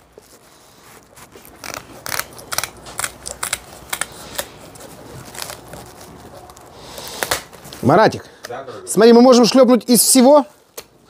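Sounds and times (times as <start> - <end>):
scissors snipping: 1.4 - 4.5.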